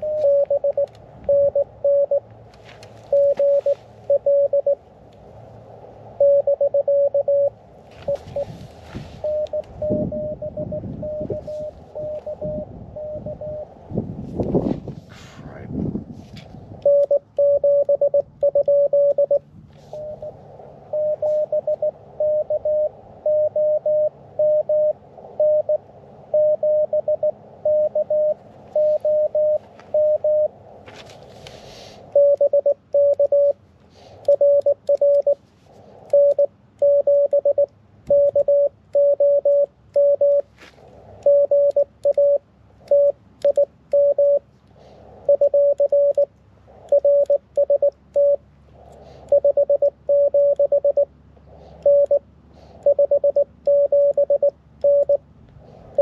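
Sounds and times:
morse code beeps: 0.0s - 2.3s, 3.0s - 4.8s, 6.2s - 13.7s, 16.8s - 30.6s, 32.1s - 35.4s, 36.1s - 40.5s, 41.2s - 44.4s, 45.2s - 48.4s, 49.2s - 51.1s, 51.7s - 52.2s, 52.8s - 55.2s
receiver hiss: 0.0s - 13.8s, 16.4s - 56.0s.

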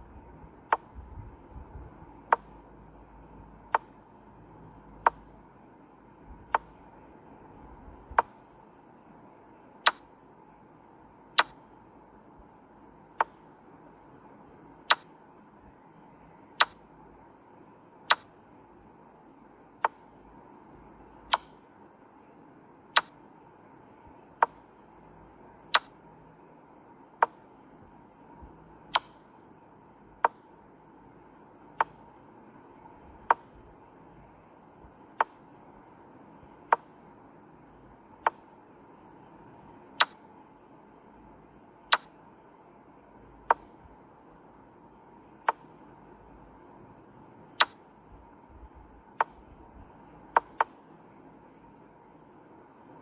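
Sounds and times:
faint steady hiss: 0.0s - 53.0s
wooden click sound effect: 50.4s - 50.7s.

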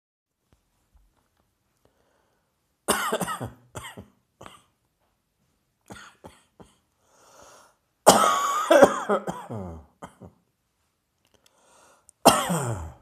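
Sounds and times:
person breathing: 1.8s - 2.7s, 6.6s - 8.0s, 11.3s - 12.2s
person coughing: 2.9s - 4.8s, 5.9s - 6.9s, 8.1s - 10.4s, 12.2s - 13.0s.

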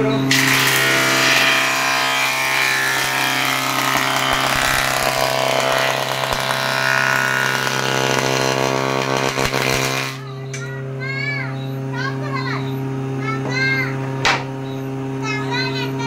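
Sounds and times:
planer motor humming: 0.0s - 10.4s.

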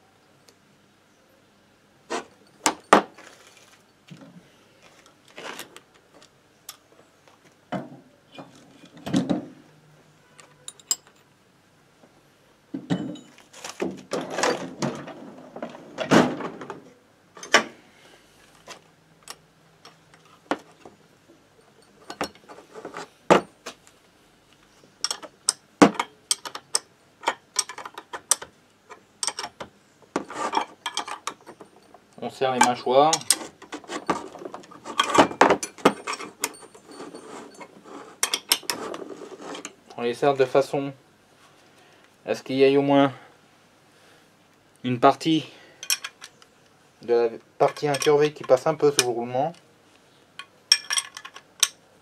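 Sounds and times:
metal parts clinking and clattering: 10.4s - 11.3s, 21.6s - 23.4s, 25.0s - 29.6s, 30.2s - 39.8s, 45.8s - 46.4s, 47.6s - 49.2s, 50.4s - 51.8s.

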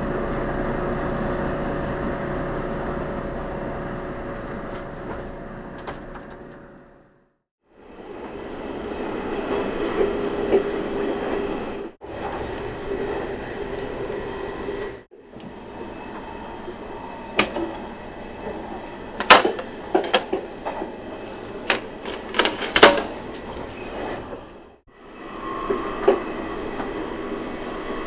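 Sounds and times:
train running rumble inside carriage: 7.7s - 28.0s
vending machine clunks and knocks: 19.2s - 20.4s.

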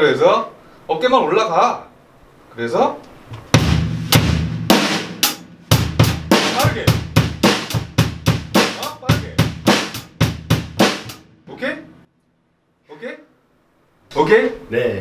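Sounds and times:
drum kit played with sticks: 3.3s - 12.1s.

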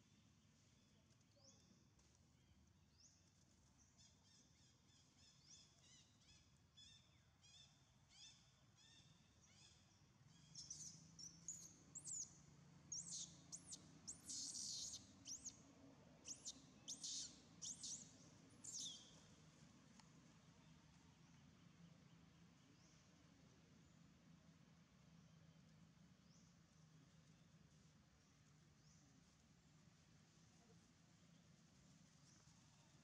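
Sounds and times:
faint high chirps: 12.9s - 15.6s.

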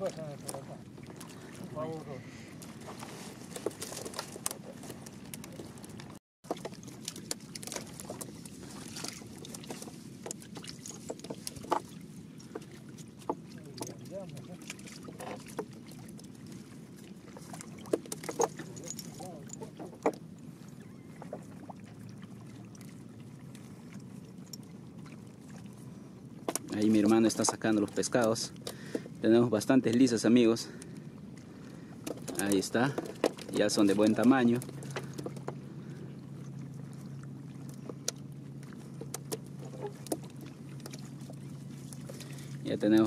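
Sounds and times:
low rumble of water and boat: 0.0s - 43.0s
steady low hum: 34.5s - 42.9s.

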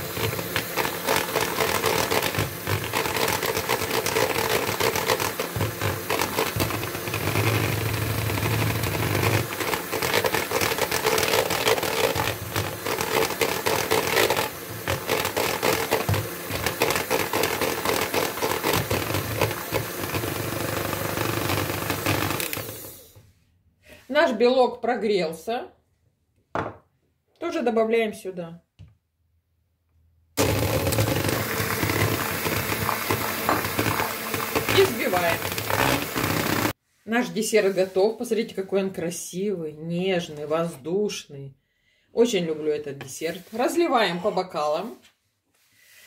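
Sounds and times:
electric hand mixer running: 0.0s - 23.1s, 30.4s - 36.8s.

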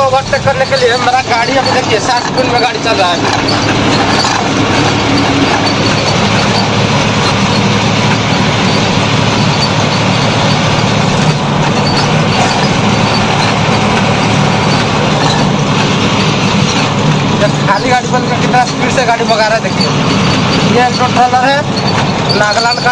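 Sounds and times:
truck engine and road noise: 0.0s - 22.9s.

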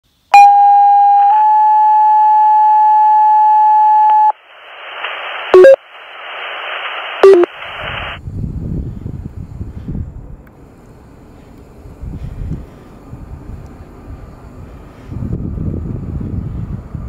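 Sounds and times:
two-tone radio page: 4.0s - 8.2s
radio hiss: 4.3s - 8.2s.

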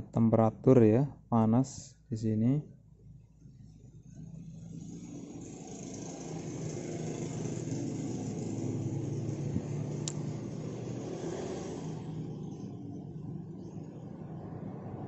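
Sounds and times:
vehicle engine running: 4.1s - 15.0s.

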